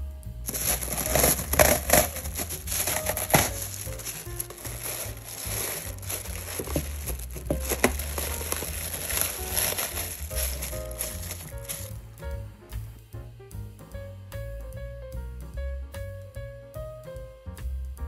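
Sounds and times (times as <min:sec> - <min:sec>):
plastic food wrap crinkling: 0:00.5 - 0:11.9.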